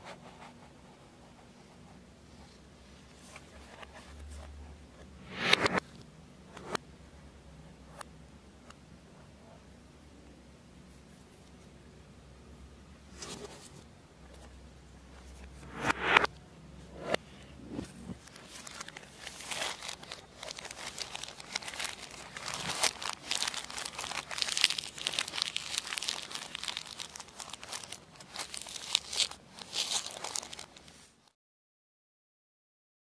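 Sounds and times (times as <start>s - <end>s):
plastic shrink wrap crinkling: 18.2s - 31.3s.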